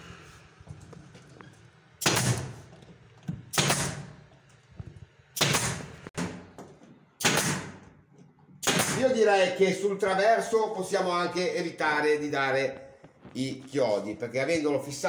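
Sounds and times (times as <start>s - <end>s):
nail gun shots: 2.0s - 2.6s, 3.5s - 4.2s, 5.4s - 6.5s, 7.2s - 7.9s, 8.6s - 9.2s.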